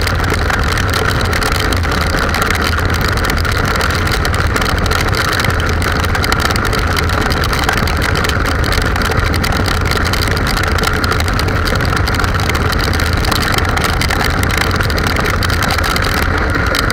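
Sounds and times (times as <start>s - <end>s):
motorcycle engine hum: 0.0s - 16.9s.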